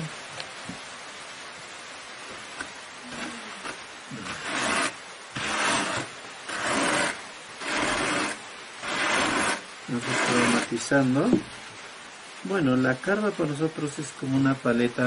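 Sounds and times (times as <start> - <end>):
wool rasping on hand card: 2.6 - 10.8.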